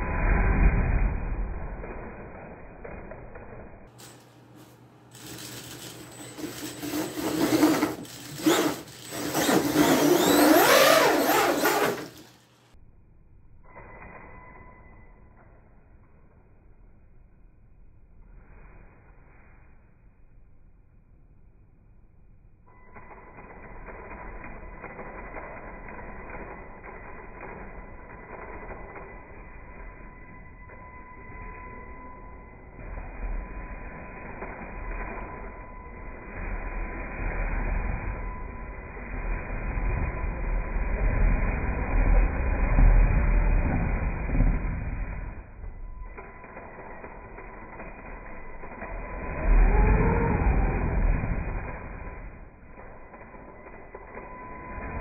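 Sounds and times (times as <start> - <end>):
rc truck electric motor whining: 5.2 - 12.3, 32.7 - 55.0.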